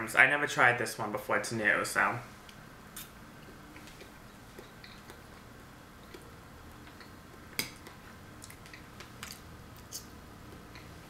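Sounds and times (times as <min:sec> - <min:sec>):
faint chewing: 0:03.0 - 0:11.0.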